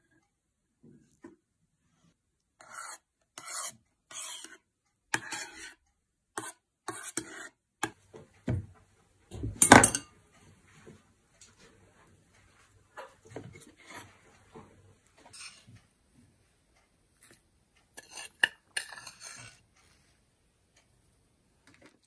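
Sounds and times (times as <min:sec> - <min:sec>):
spoon scraping ceramic bowl: 0:02.6 - 0:04.6, 0:05.2 - 0:05.8, 0:06.4 - 0:08.0, 0:13.5 - 0:14.2, 0:15.3 - 0:15.7, 0:17.9 - 0:19.6.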